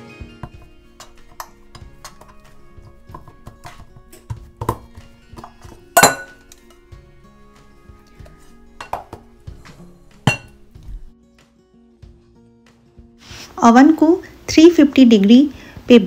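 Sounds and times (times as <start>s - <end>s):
soft background music: 0.0s - 16.0s
metal pan knocking on stone countertop: 0.4s - 6.8s, 8.2s - 10.9s.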